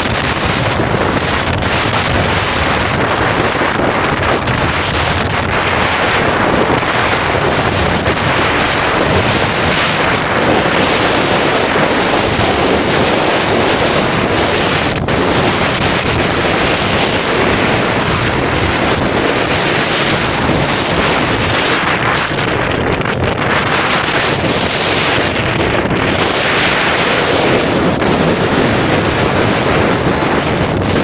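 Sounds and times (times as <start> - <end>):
road and traffic noise: 0.0 - 10.2
wind rushing over microphone: 0.0 - 31.0.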